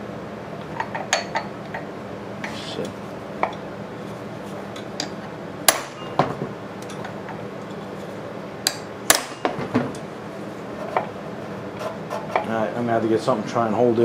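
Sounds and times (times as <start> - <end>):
hammer striking steel rod: 5.7 - 6.2, 8.7 - 9.6.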